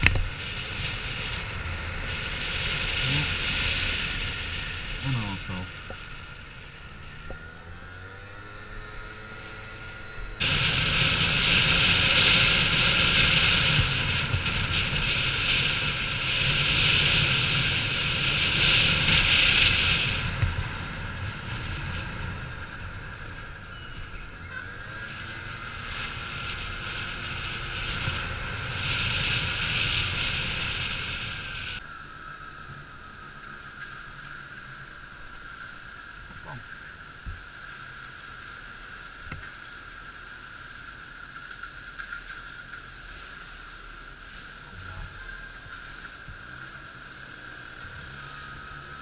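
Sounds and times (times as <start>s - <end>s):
wind rushing on microphone: 0.0s - 31.9s
scooter engine running: 0.0s - 49.0s.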